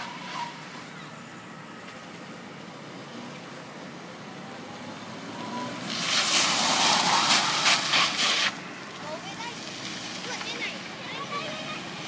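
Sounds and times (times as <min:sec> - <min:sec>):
tyres scrubbing on asphalt: 0:00.0 - 0:01.2, 0:05.1 - 0:12.0.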